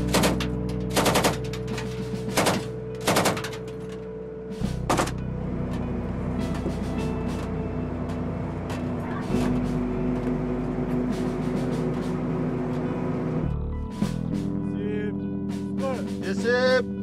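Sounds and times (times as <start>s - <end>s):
automatic gunfire bursts: 0.0s - 1.4s, 2.3s - 3.5s
low music score: 0.0s - 17.0s.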